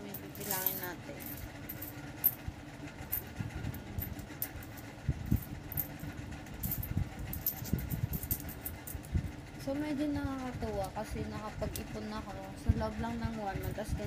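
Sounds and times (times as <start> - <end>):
coins clinking on cloth: 0.0 - 2.4, 6.6 - 9.0
low background hum: 0.0 - 14.0.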